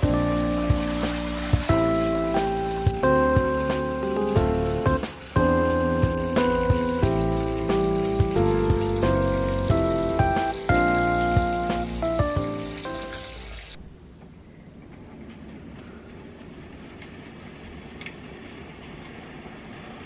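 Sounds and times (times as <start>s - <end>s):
background music with held notes: 0.0s - 13.8s
water pouring into a bathtub: 0.0s - 13.8s.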